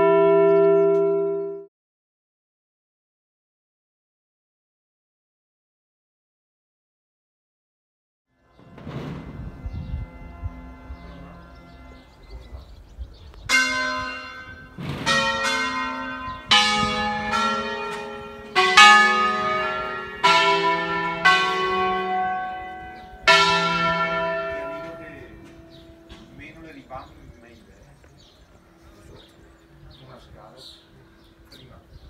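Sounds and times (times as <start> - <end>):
church bells ringing: 0.0 - 1.7, 8.4 - 32.0.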